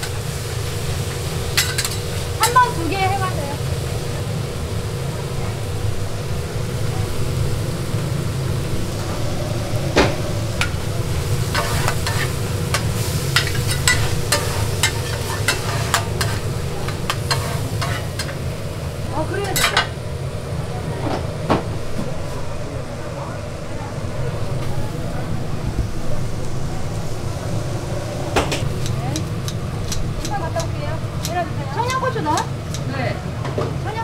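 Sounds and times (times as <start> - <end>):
food sizzling on a griddle: 0.0 - 20.9, 28.4 - 34.0
steady low hum: 0.0 - 34.0
metal spatula scraping griddle: 10.6 - 18.4.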